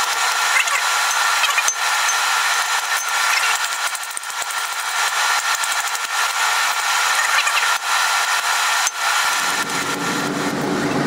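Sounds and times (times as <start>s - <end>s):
sped-up hammering and tool noise: 0.0s - 10.7s
low rumbling layer: 9.4s - 11.0s.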